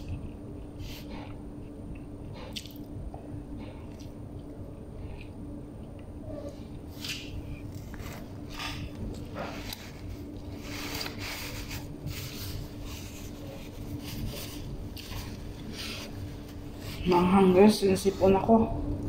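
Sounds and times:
tissue rustling: 7.7s - 18.0s.

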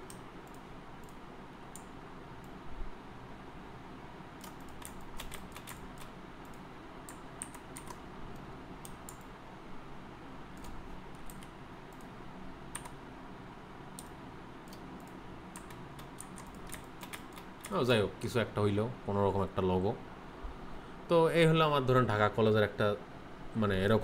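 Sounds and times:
low room hum: 0.0s - 24.0s
mouse and keyboard clicks: 4.4s - 9.3s, 14.0s - 17.8s.

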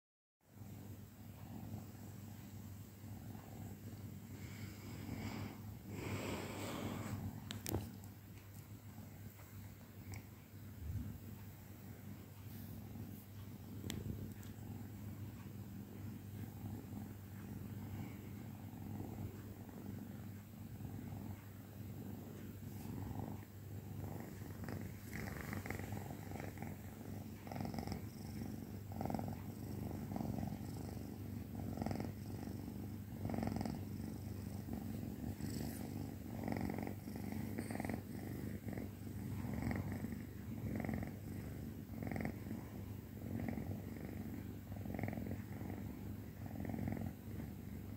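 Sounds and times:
kitten purring: 0.5s - 47.9s.

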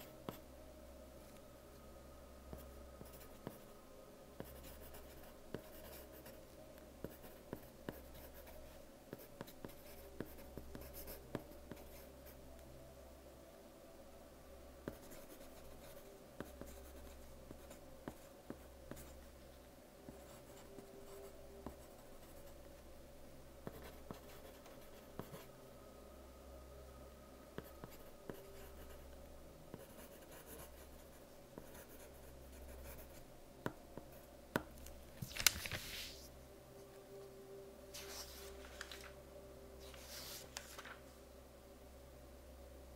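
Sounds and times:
faint steady hum: 0.0s - 42.9s
pencil scratching on paper: 4.4s - 6.4s, 7.0s - 12.0s, 14.8s - 19.1s, 20.1s - 22.5s, 23.6s - 25.5s, 27.6s - 28.9s, 29.7s - 33.2s.

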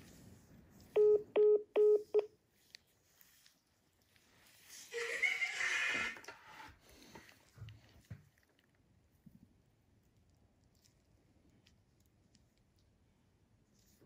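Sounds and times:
short electronic phone beeps: 1.0s - 2.3s.

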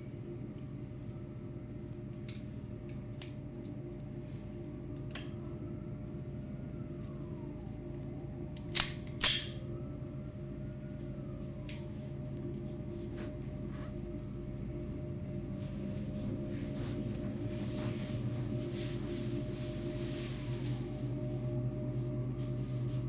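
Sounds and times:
low ambient hum: 0.0s - 23.0s
faint rising and falling tone: 9.6s - 23.0s.

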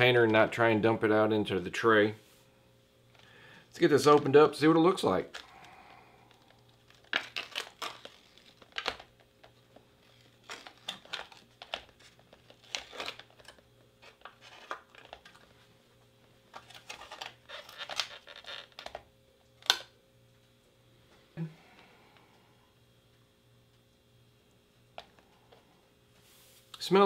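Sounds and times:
foil crinkling and crumpling: 5.2s - 15.6s, 16.5s - 19.0s
foil lid being peeled: 6.3s - 9.2s, 10.0s - 15.4s, 16.6s - 19.0s.

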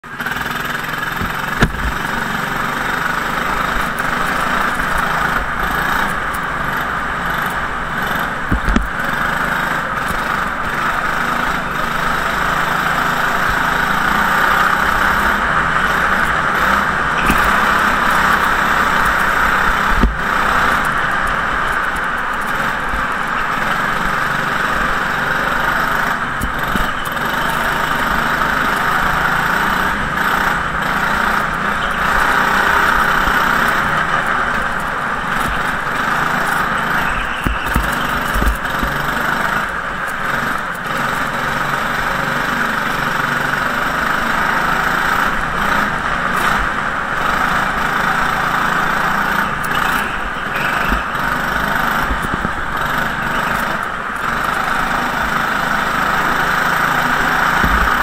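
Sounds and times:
go-kart engine running: 0.0s - 58.0s
sharp knocks: 1.2s - 2.2s.

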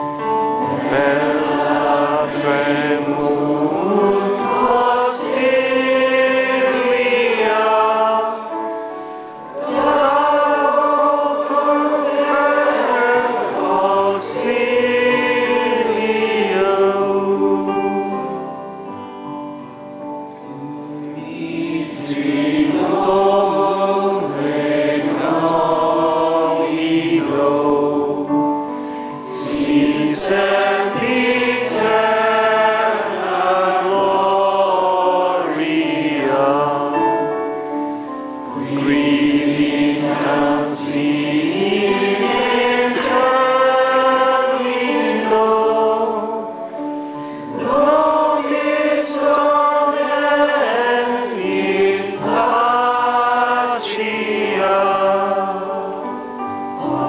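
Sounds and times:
congregation singing a chant: 0.0s - 19.2s, 20.0s - 57.0s.

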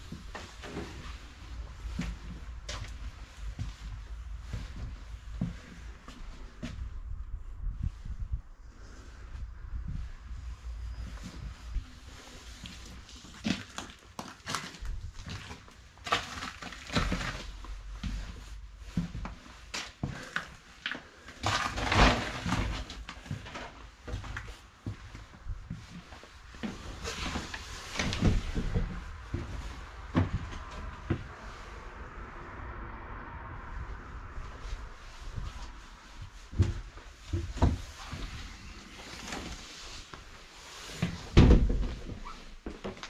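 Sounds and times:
low rumble: 0.0s - 12.4s, 28.1s - 38.9s.

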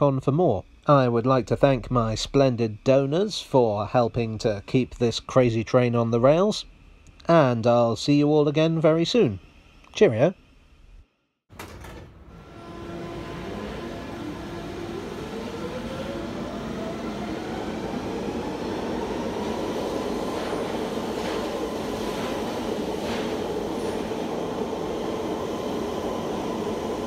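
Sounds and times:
train motor whine: 11.6s - 27.0s
train rumble: 12.2s - 27.0s.

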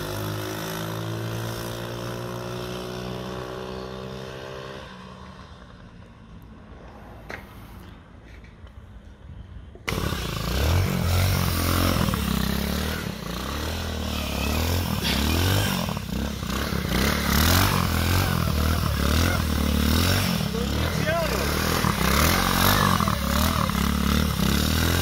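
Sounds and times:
small engine revving: 9.8s - 25.0s.

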